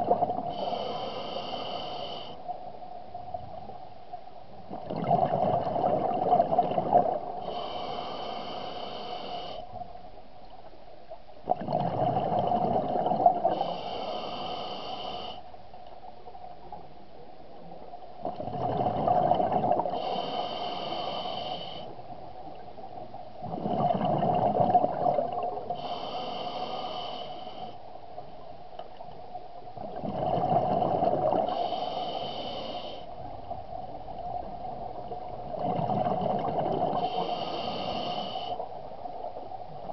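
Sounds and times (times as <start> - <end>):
exhaled bubbles underwater: 0.0 - 0.6, 4.7 - 7.6, 11.5 - 13.7, 18.2 - 20.3, 23.4 - 25.9, 29.8 - 31.7, 33.3 - 37.9
regulator hiss: 0.5 - 2.5, 7.4 - 9.7, 13.5 - 15.5, 19.9 - 22.1, 25.8 - 27.8, 31.5 - 33.2, 37.0 - 38.8.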